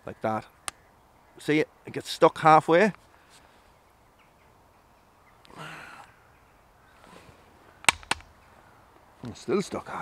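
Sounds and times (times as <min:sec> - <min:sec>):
sharp clicks: 0:07.8 - 0:08.4.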